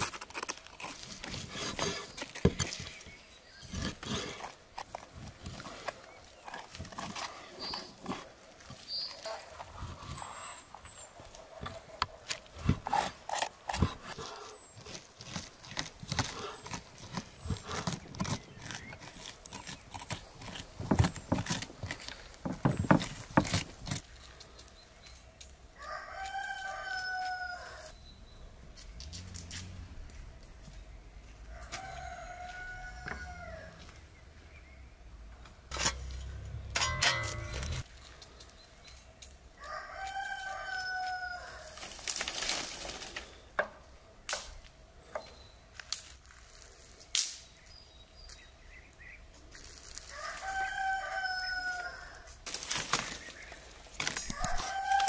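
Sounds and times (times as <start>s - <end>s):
rooster crowing: 25.8s - 27.9s, 31.6s - 33.9s, 39.6s - 41.7s, 50.1s - 52.3s, 54.3s - 55.0s.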